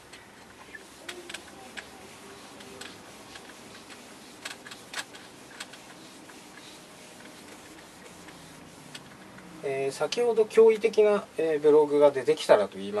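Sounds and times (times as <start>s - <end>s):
eraser wiping a whiteboard: 0.6s - 9.8s
light taps and clicks: 7.4s - 11.0s.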